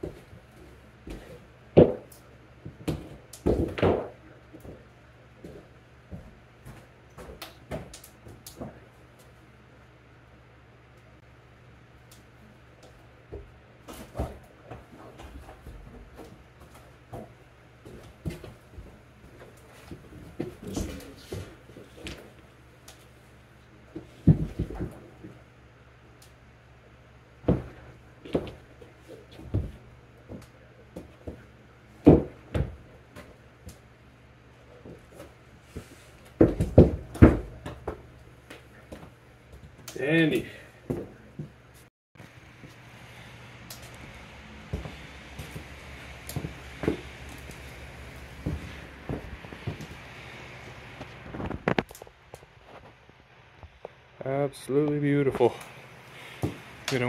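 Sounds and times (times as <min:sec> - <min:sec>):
steady low hum: 0:00.0 - 0:57.0
shuffling footsteps: 0:12.9 - 0:25.4, 0:34.6 - 0:54.0, 0:54.9 - 0:57.0.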